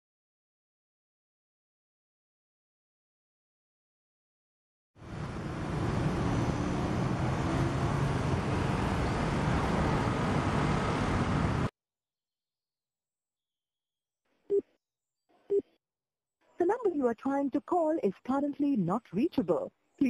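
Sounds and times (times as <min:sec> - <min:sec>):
motor scooter engine and road noise: 0:05.0 - 0:11.7.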